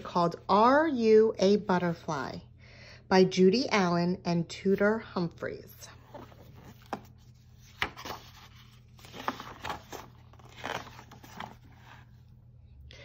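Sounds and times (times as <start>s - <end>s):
book pages rustling: 5.9s - 12.4s.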